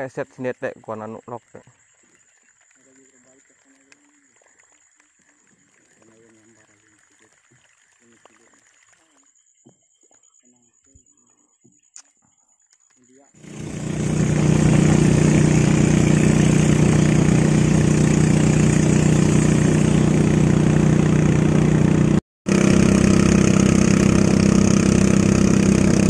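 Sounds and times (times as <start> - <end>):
boat motor running: 13.4 - 26.0.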